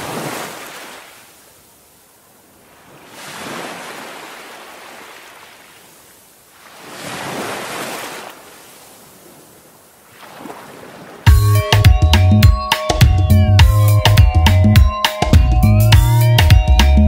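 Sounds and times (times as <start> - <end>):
ocean waves washing: 0.0 - 11.3
loud music with drum beat: 11.3 - 17.0.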